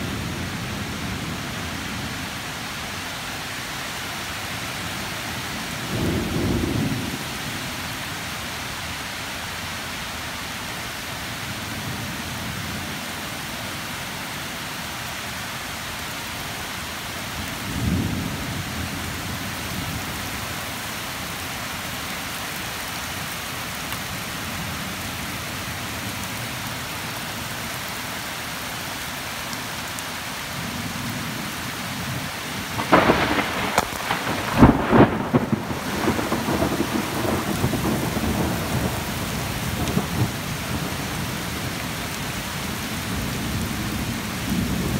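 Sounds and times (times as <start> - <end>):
steady rain: 0.0 - 44.9
thunder rumbling: 32.7 - 41.3
thunder crack: 32.8 - 39.0.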